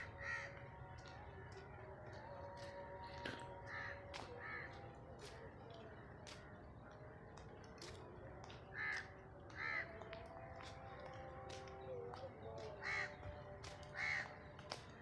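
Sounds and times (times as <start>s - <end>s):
crow cawing: 0.0s - 0.6s, 3.7s - 4.7s, 8.8s - 9.9s, 12.8s - 13.1s, 14.0s - 14.3s.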